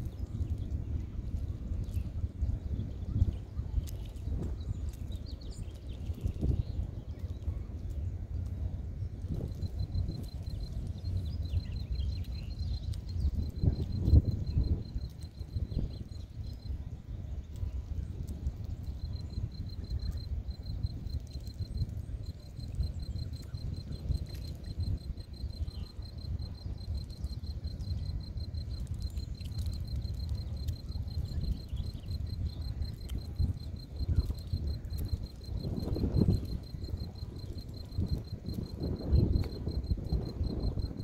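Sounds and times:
cricket trilling: 0:09.3 - 0:16.8, 0:18.1 - 0:41.0.

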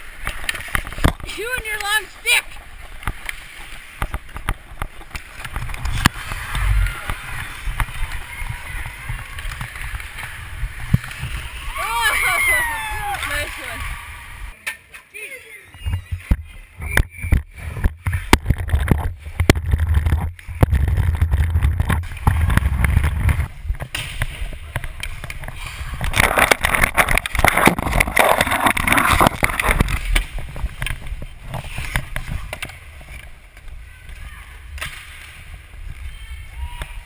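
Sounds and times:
skate blades scraping on ice: 0:00.0 - 0:14.3, 0:17.5 - 0:37.0
wind rumble on microphone: 0:15.9 - 0:33.2.

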